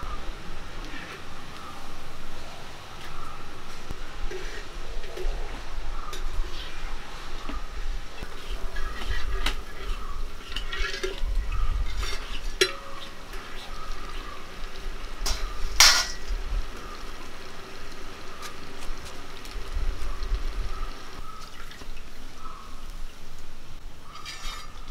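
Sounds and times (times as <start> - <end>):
deep-frying sizzle: 0.0 - 24.9
skimmer scraping and clinking on pan: 4.2 - 6.7, 8.2 - 13.8, 15.2 - 16.4, 24.1 - 24.9.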